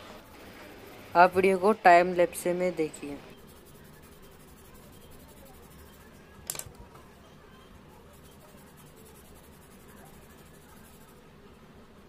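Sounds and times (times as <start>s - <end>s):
pencils scratching on paper: 2.8s - 6.3s, 8.0s - 11.3s.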